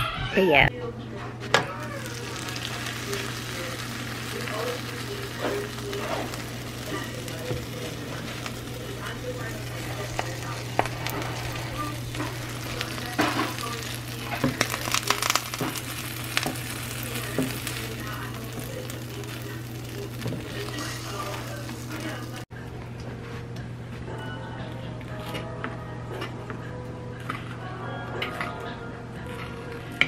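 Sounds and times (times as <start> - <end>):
sandwich sizzling in a pan: 1.6 - 22.5.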